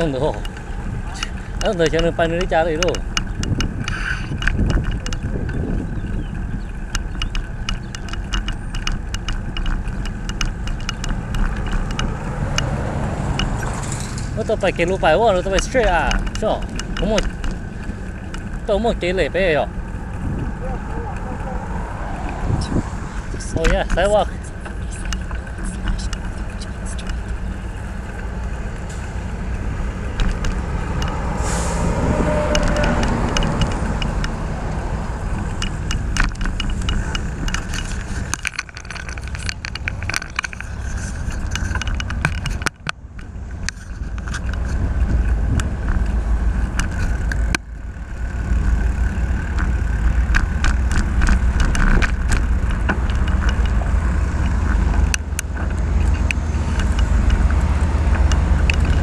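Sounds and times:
passing car traffic: 0.0 - 59.0
sharp clicks and rattles: 0.0 - 59.0
wind rumbling on microphone: 0.0 - 59.0.

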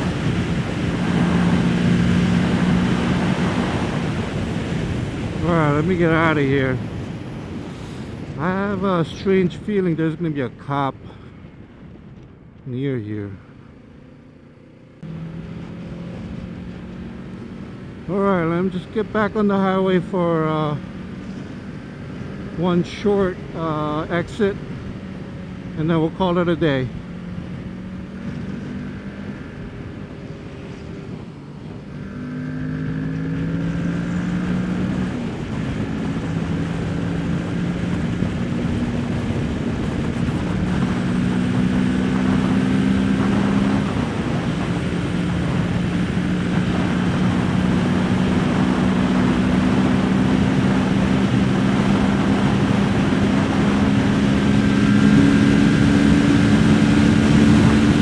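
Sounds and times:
motorcycle engine accelerating hard: 0.0 - 9.5, 13.5 - 58.0
wind rush on microphone: 0.0 - 9.6, 26.8 - 58.0.

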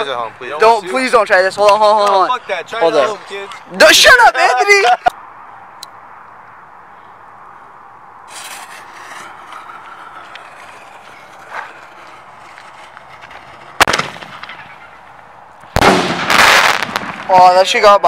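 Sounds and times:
loud firework bangs: 8.3 - 17.4
muffled mortar launch: 13.3 - 15.0, 15.7 - 17.3.

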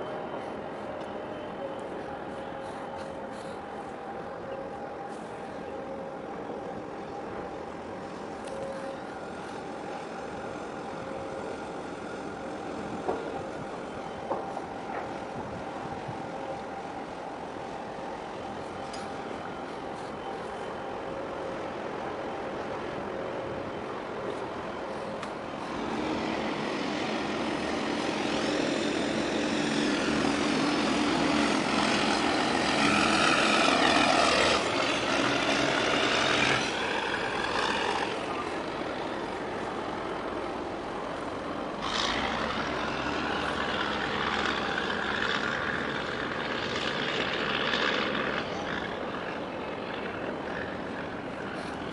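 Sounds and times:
ship engines droning: 0.0 - 51.9.

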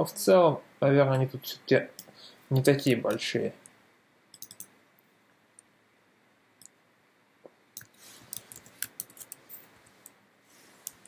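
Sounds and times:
computer keyboard typing: 4.3 - 4.7, 7.8 - 9.6.

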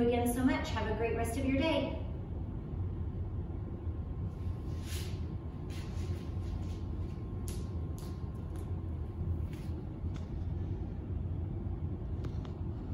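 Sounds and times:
low room hum: 0.0 - 12.9
barefoot footsteps and shuffles: 4.6 - 8.8, 9.4 - 10.2.

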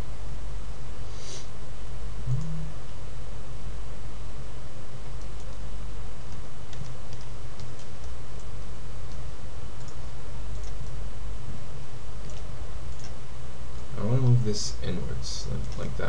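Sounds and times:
steady low hum: 0.0 - 16.0
computer mouse clicking: 5.2 - 5.6, 6.3 - 9.2, 9.8 - 11.0, 12.2 - 13.2, 15.6 - 15.9.

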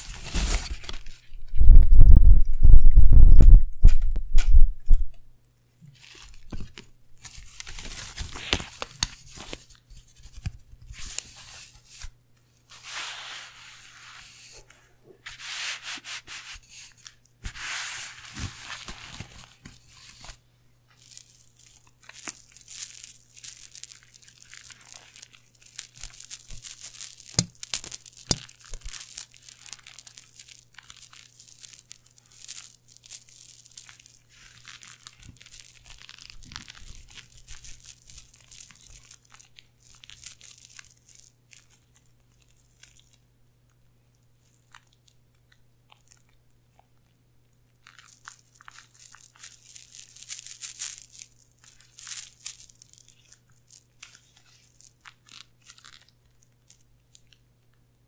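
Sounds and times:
metal coins jingling: 21.0 - 39.3, 48.8 - 53.9.

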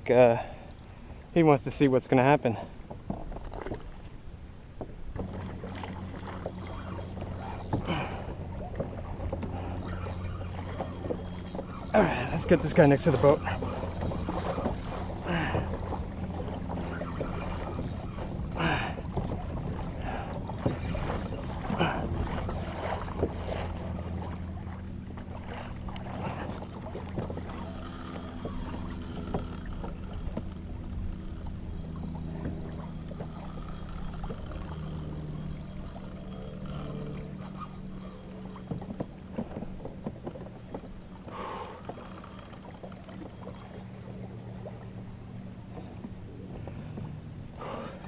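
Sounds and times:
steady low hum: 0.0 - 48.0
water slapping against kayak hull: 4.8 - 48.0.

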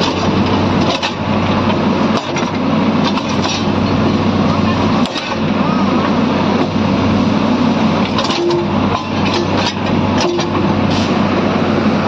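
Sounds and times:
metal clanks and knocks: 0.0 - 1.3, 8.0 - 11.1
excavator diesel engine running: 0.0 - 12.0.

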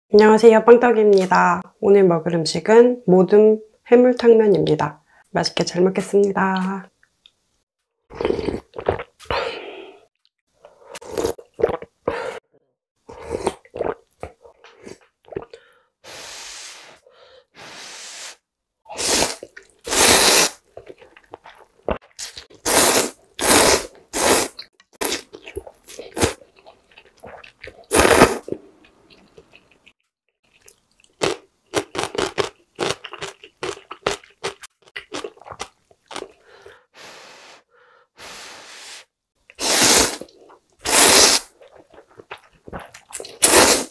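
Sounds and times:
noodle slurping: 18.9 - 26.4, 27.2 - 28.5, 38.3 - 43.9
soft chewing: 24.6 - 31.4.

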